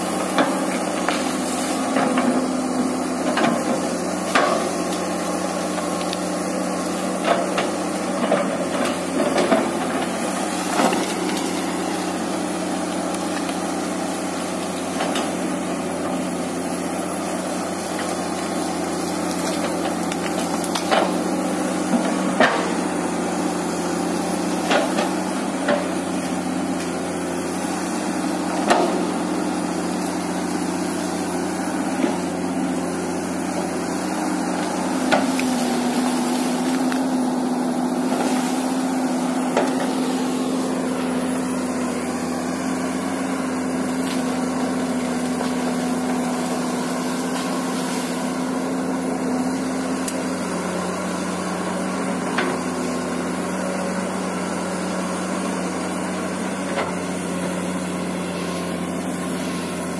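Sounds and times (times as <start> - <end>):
excavator engine and hydraulics: 0.0 - 59.9
branches cracking: 8.2 - 15.6, 17.8 - 22.9, 28.6 - 48.5.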